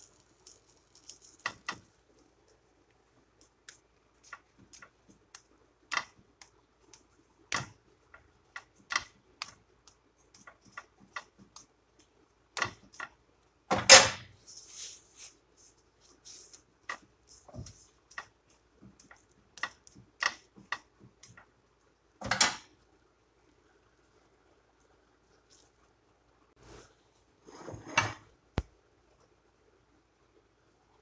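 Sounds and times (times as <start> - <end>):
food clicking and popping in pan: 0.0 - 14.3, 16.8 - 21.5.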